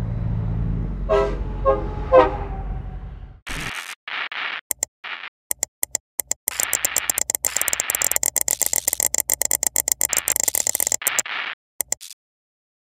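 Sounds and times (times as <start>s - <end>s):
rapid clicks: 5.5s - 12.2s.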